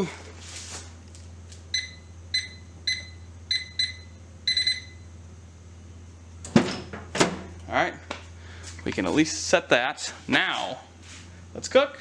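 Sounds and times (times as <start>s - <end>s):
microwave keypad beeps: 1.7s - 5.1s.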